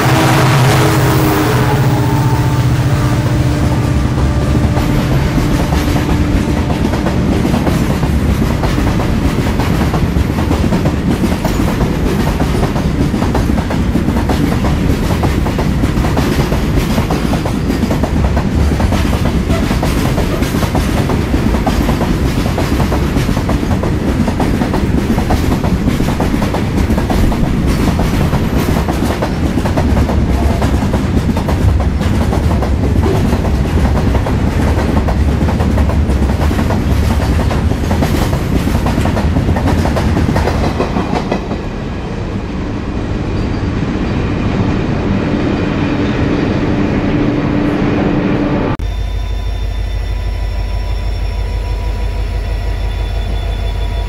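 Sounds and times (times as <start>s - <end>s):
diesel locomotive engine: 0.0s - 54.0s
train wheels clattering over rail joints: 4.6s - 41.7s.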